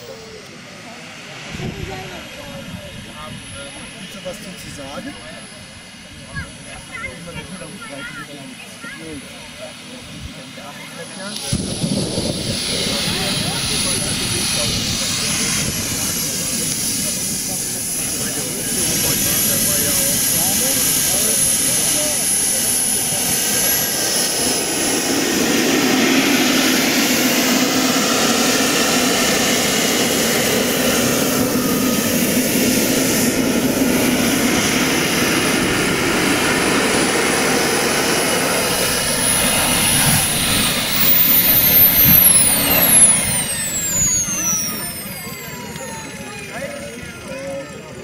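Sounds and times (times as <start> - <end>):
model jet engines whining: 0.0 - 48.0.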